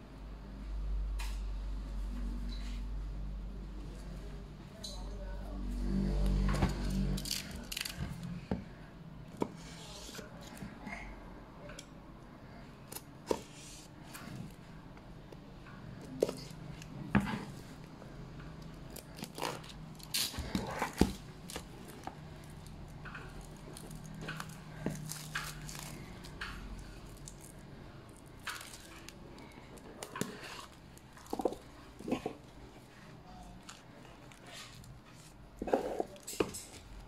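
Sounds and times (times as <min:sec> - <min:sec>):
plastic wrap crinkling and tearing: 0:07.0 - 0:08.0, 0:18.9 - 0:29.5.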